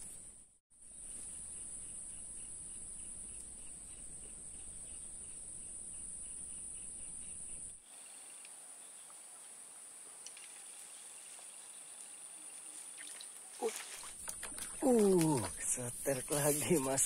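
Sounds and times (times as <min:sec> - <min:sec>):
insects droning: 0:00.8 - 0:17.0.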